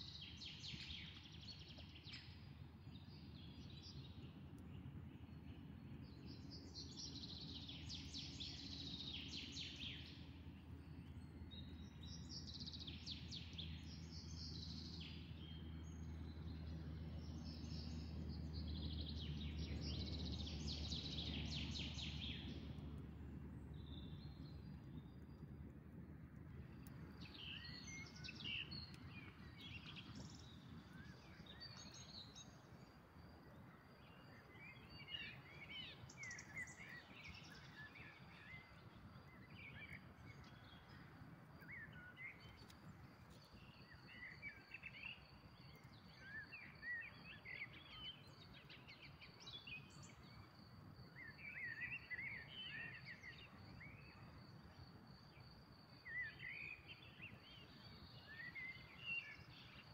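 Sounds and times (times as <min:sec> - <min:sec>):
low background rumble: 0:00.0 - 0:46.7
small birds chirping: 0:00.0 - 0:59.9.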